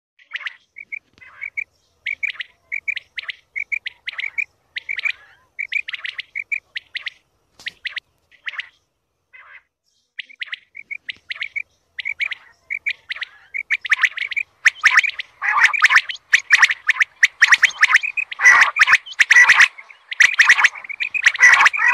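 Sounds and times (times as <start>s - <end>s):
quail calls: 0.2s - 8.7s, 9.4s - 21.9s
harsh rasping bird notes: 10.8s - 21.9s.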